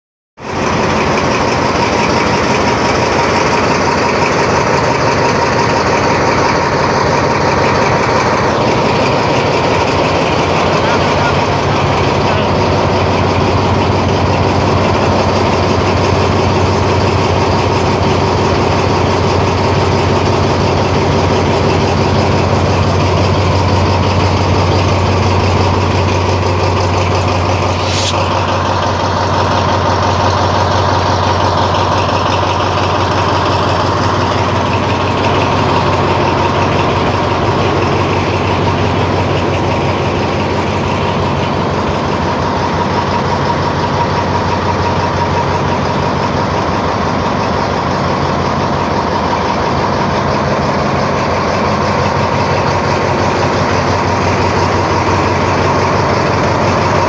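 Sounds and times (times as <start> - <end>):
locomotive engine idling: 0.4 - 57.0
thin steady whine: 27.7 - 28.2
sharp hiss of air: 27.7 - 28.4.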